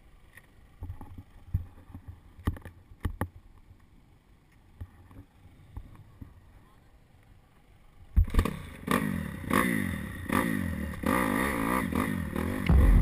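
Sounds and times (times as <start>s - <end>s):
motocross bike engine revving: 8.4s - 13.0s
sharp engine knocks: 12.6s - 13.0s.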